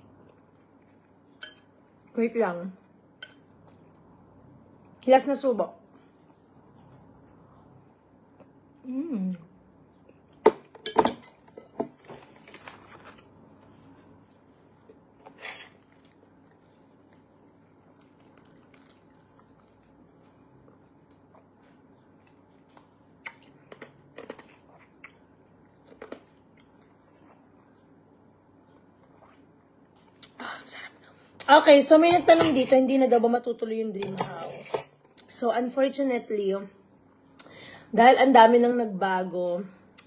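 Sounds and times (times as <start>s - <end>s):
quiet chewing: 13.0s - 28.0s.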